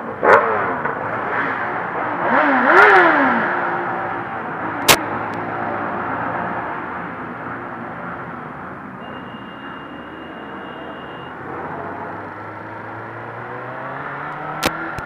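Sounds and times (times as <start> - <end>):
motorcycle engines at low revs: 0.0 - 6.0, 11.3 - 15.0.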